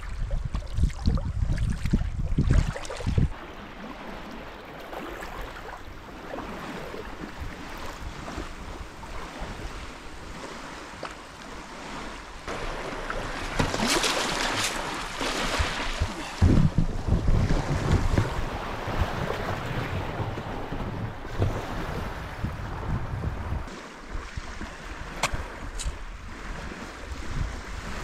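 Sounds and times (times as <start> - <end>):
wind gusting on microphone: 0.0 - 4.2, 15.3 - 28.0
water splashing around kayak: 0.0 - 28.0
small waves on pebble beach: 3.3 - 16.4, 23.7 - 28.0.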